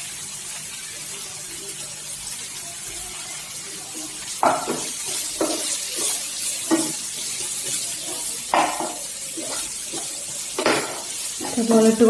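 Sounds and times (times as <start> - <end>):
onions sizzling in oil: 0.0 - 12.0
spatula scraping a pan: 4.0 - 12.0.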